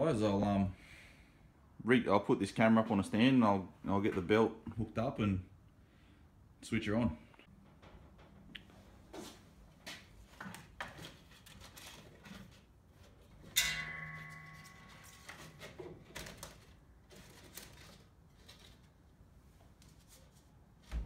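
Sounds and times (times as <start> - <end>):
sharp metallic clang: 13.5 - 16.4.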